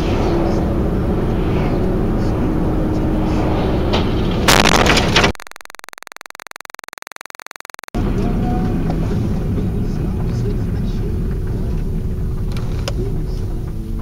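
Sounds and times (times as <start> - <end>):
road and engine noise: 0.0 - 4.5, 8.0 - 14.0
sudden loud noise burst: 0.0 - 5.4
repeating electronic buzz: 4.5 - 7.9.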